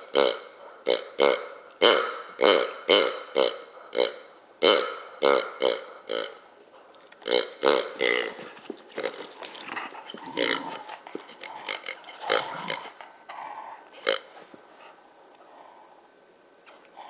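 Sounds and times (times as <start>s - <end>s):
rubber pig toy honking: 0.1s - 6.4s
dog chewing rubber toy: 7.2s - 14.3s.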